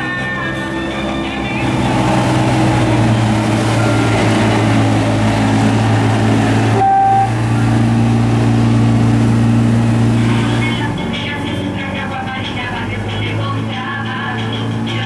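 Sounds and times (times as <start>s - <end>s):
motorboat engine humming: 0.0s - 15.0s
water rushing: 0.0s - 15.0s
brief high tone: 3.5s - 5.0s, 6.7s - 7.7s.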